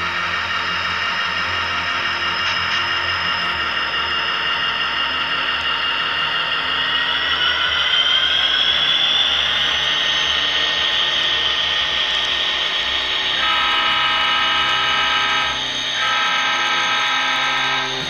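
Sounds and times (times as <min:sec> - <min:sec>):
diesel locomotives rolling past: 0:00.0 - 0:18.0
multi-note train horn: 0:13.3 - 0:18.0.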